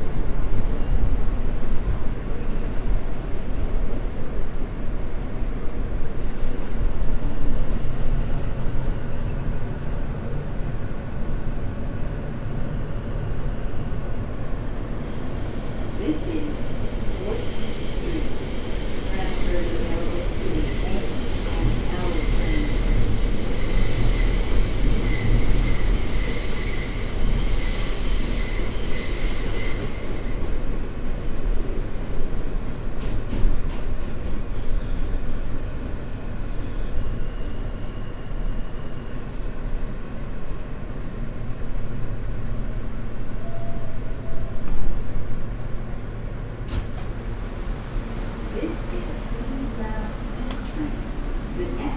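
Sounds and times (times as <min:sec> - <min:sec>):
subway train rumbling on rails: 0:00.0 - 0:51.9.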